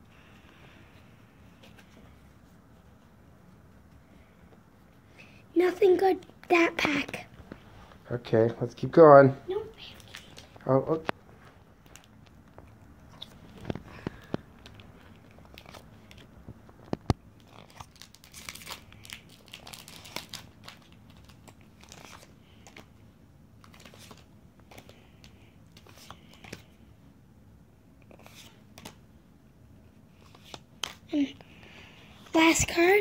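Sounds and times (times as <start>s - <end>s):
trading cards rustling and flicking: 9.6s - 23.0s, 23.6s - 26.8s, 28.0s - 29.1s, 30.0s - 33.0s.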